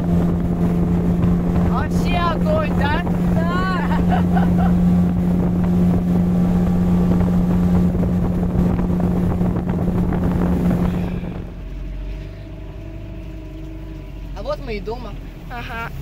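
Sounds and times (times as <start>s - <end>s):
wind on microphone: 0.0s - 12.7s
outboard motor running: 0.0s - 16.0s.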